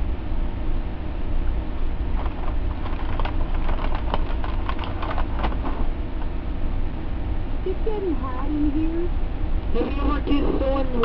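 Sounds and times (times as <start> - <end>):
steady low hum: 0.0 - 11.0
quick irregular clicks: 2.2 - 5.6.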